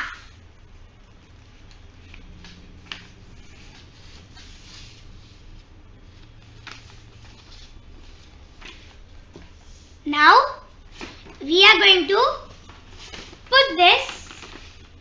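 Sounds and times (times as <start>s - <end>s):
low steady hum: 0.0s - 15.0s
paper rustling and folding: 1.6s - 10.0s, 10.9s - 11.4s, 12.5s - 15.0s.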